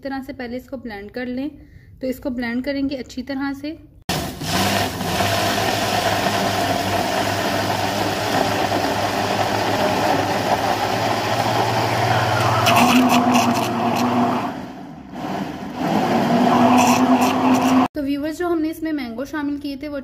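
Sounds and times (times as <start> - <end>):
electric blender running: 4.1 - 17.9.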